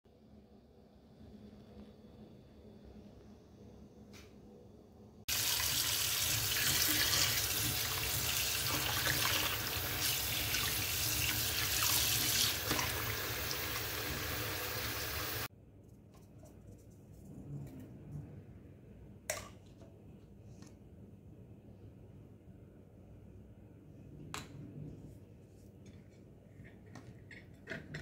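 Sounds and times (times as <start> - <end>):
tap water pouring into container: 5.3 - 15.5.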